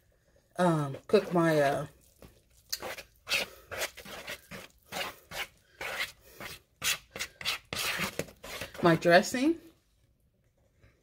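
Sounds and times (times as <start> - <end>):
wooden spoon scraping plastic bowl: 0.7 - 9.3.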